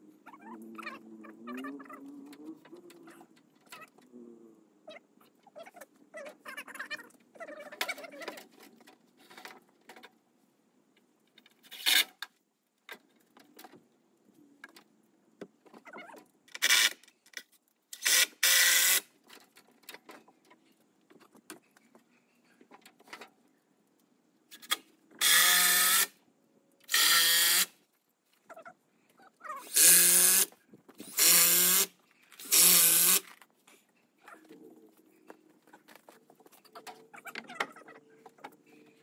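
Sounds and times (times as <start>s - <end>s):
power drill drilling into timber: 18.0s - 19.0s, 25.2s - 26.1s, 26.9s - 27.7s, 29.7s - 33.2s.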